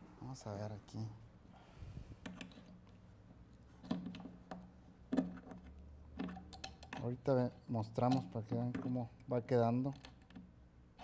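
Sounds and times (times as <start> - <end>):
clicks and knocks of hardware handling: 3.8 - 10.5.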